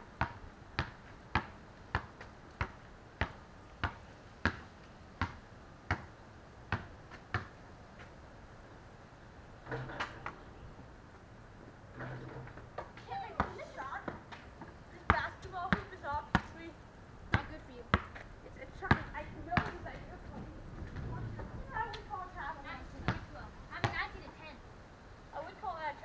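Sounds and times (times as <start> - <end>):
basketball bouncing on concrete: 0.2 - 6.1, 6.7 - 7.5, 12.8 - 16.6, 17.3 - 22.1, 22.9 - 24.3.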